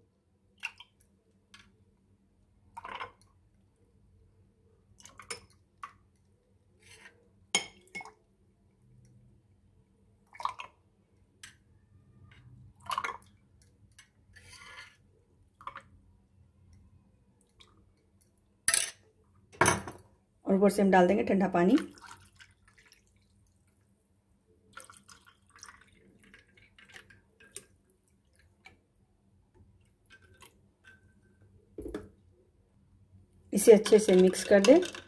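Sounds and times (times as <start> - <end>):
soft wet drips: 0.5 - 1.8, 4.9 - 6.4, 10.2 - 11.6, 15.5 - 18.6, 21.8 - 31.5.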